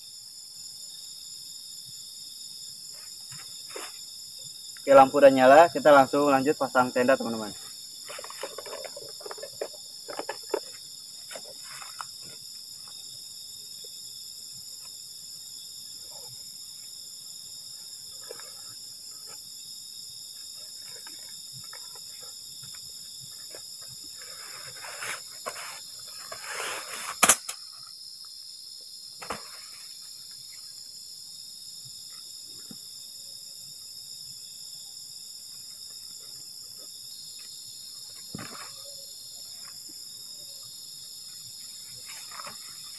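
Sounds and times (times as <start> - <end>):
night insects trilling: 0.0 - 42.9
sharp loud click: 27.2 - 27.6.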